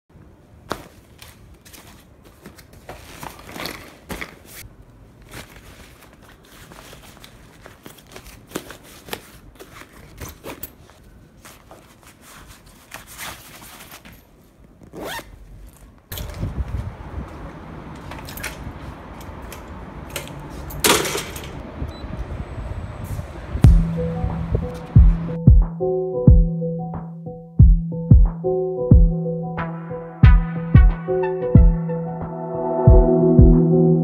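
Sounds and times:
clothes rustling in bag: 0.6s - 19.6s
zipper being pulled: 14.8s - 15.9s.

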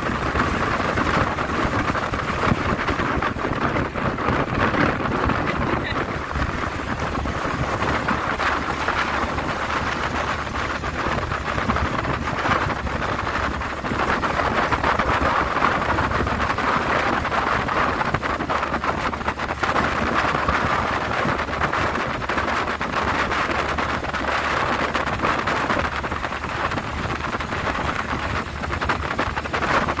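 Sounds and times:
car engine driving: 0.0s - 18.5s
wind buffeting microphone: 0.0s - 30.0s.

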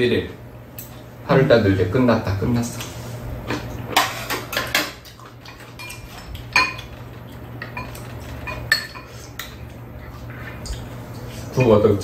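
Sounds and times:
metal spoons clinking against bowls: 4.0s - 7.0s, 7.6s - 9.7s, 11.5s - 12.0s.

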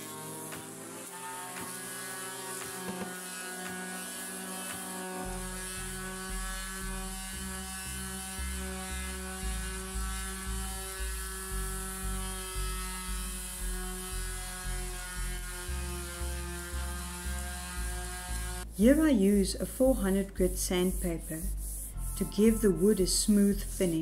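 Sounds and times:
background music with a beat: 0.0s - 3.9s
electric sander running on wood: 0.0s - 18.7s.

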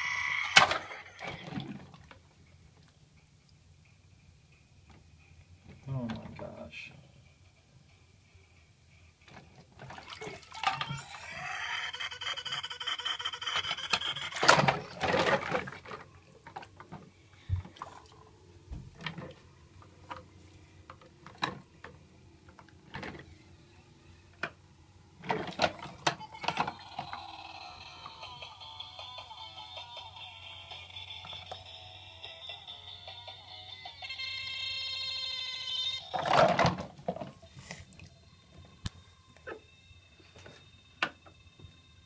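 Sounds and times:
water splashing in a sink: 9.8s - 11.0s.

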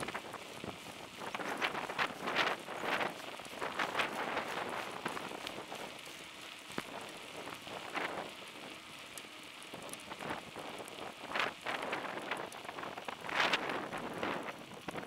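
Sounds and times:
wind buffeting microphone: 0.0s - 6.1s, 9.7s - 15.0s
bicycle rolling on asphalt: 0.0s - 15.0s
small clicks: 0.0s - 15.0s.

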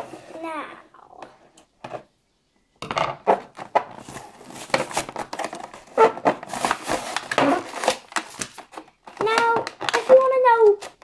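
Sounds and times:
cardboard and plastic packaging tearing: 4.0s - 11.0s.

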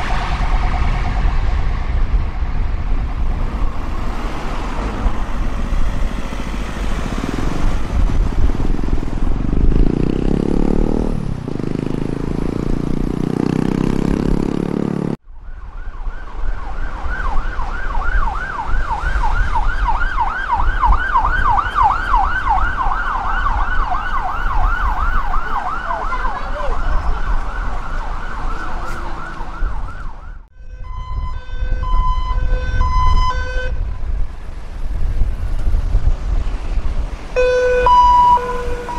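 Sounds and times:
pulsed siren tones: 0.0s - 2.4s, 15.4s - 33.8s, 37.4s - 38.9s
low pulsing siren: 0.0s - 7.2s, 15.2s - 34.0s, 37.4s - 38.9s
traffic noise: 0.0s - 38.9s
fast yelp siren: 15.4s - 33.7s, 37.4s - 38.9s.

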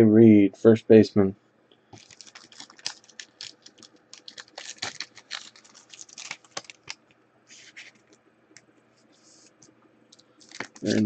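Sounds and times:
scratchy rustling: 2.0s - 8.1s.

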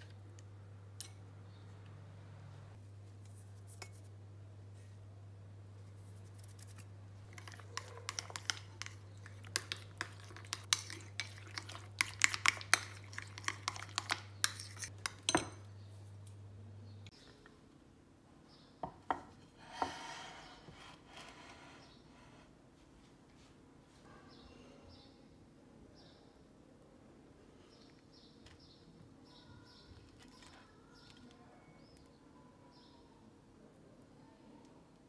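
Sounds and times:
metal spoon clinking on glass bowl: 9.6s - 15.7s.

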